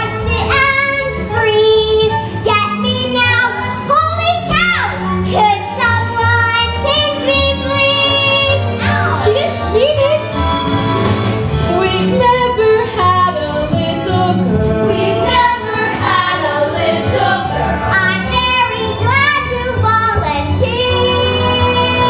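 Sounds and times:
musical accompaniment: 0.0 - 22.0
girls singing together: 14.9 - 19.0.

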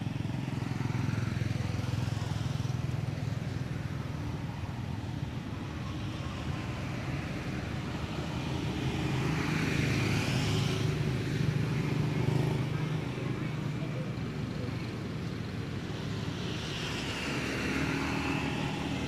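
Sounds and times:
road traffic drone: 0.0 - 19.0.

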